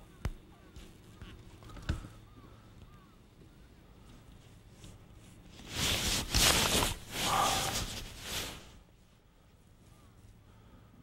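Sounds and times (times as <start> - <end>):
rain suit rustling: 5.4 - 8.9.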